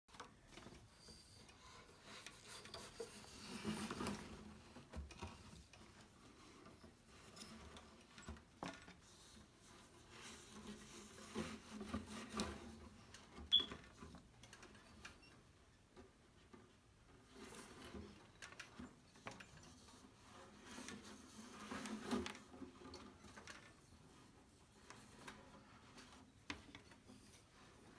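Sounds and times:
yarn rubbing on loom threads: 0:00.1 - 0:13.2.

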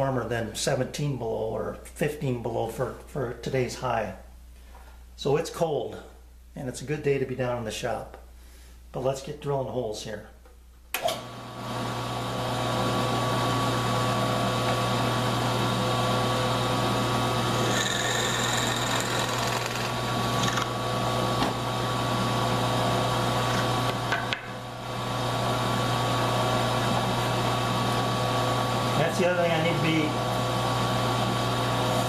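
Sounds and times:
drill press motor humming: 0:11.0 - 0:29.0
drill bit whining boring wood: 0:17.4 - 0:20.7.

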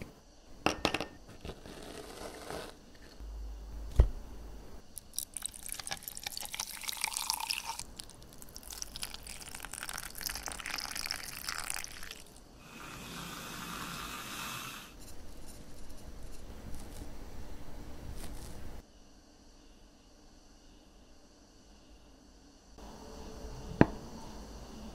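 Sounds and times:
milk pouring into glass: 0:05.0 - 0:12.4
water pouring into glass teapot: 0:05.0 - 0:12.4.

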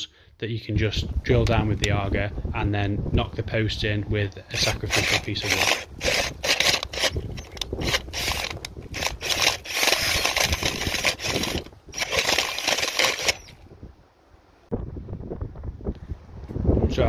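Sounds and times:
cordless drill augering: 0:04.5 - 0:13.6.

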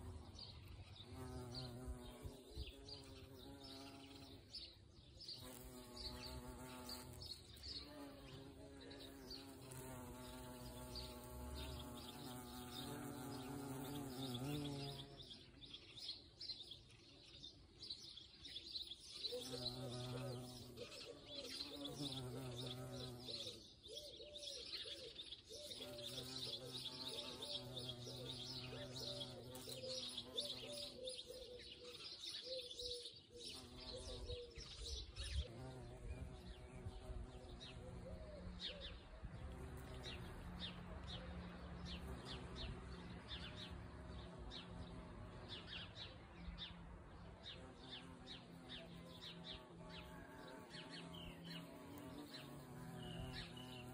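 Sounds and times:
small birds chirping: 0:00.0 - 0:53.9
bee wings buzzing: 0:05.3 - 0:15.3, 0:19.4 - 0:23.7, 0:25.8 - 0:31.0, 0:47.4 - 0:53.9
dove cooing: 0:37.8 - 0:39.0.

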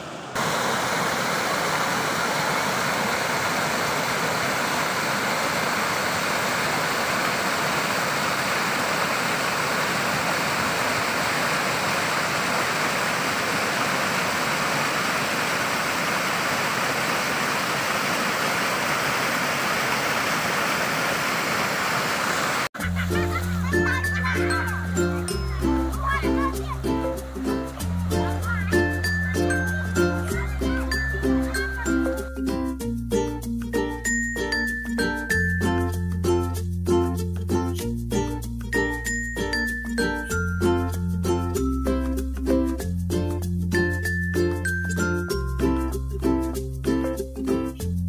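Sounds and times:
water rushing from culvert: 0:00.3 - 0:32.4.

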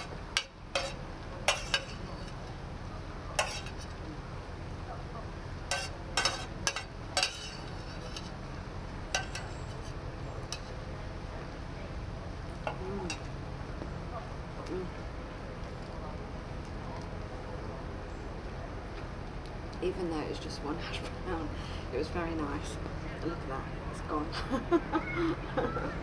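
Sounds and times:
low outdoor background: 0:00.0 - 0:26.0
cutlery clinking on a plate: 0:00.4 - 0:02.0, 0:03.4 - 0:03.8, 0:05.7 - 0:08.3, 0:09.2 - 0:09.8.

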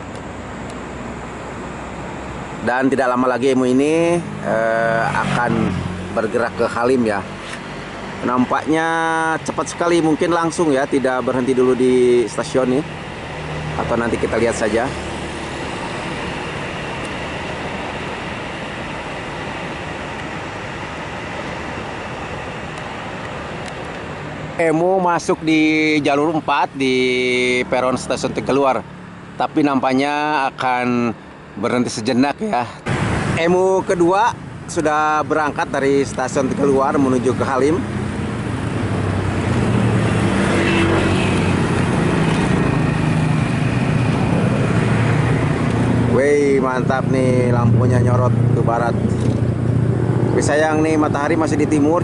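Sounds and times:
distant train rushing: 0:03.3 - 0:29.4, 0:32.8 - 0:52.0
vehicle rumble with hum: 0:32.8 - 0:52.0.

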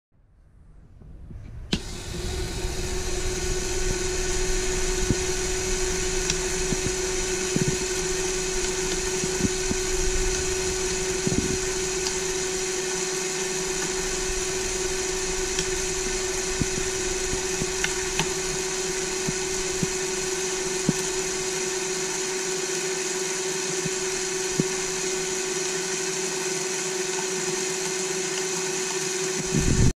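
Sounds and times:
electric motor whine: 0:01.6 - 0:29.9.

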